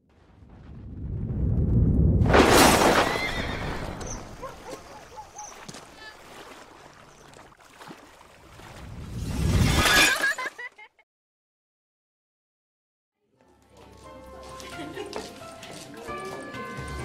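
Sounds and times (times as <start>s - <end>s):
glass shattering crash: 2.3s - 3.9s, 9.5s - 10.6s.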